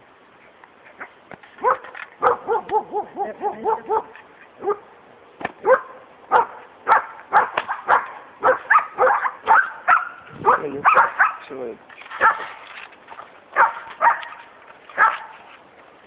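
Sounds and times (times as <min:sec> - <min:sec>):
puppy barking and yipping: 0:01.0 - 0:04.9, 0:05.6 - 0:11.5, 0:12.1 - 0:12.6, 0:13.6 - 0:15.4.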